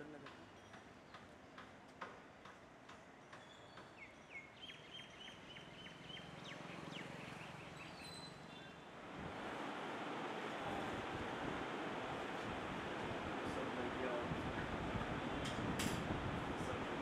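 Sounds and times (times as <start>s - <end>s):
small bird chirping: 3.3s - 8.7s.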